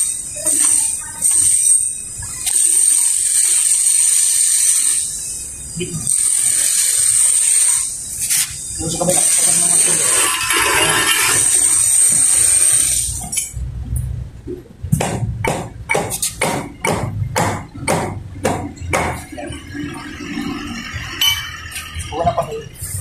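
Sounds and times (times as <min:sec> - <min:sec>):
loud steady hiss: 0:00.0 - 0:13.4
sharp knocks: 0:14.9 - 0:19.3.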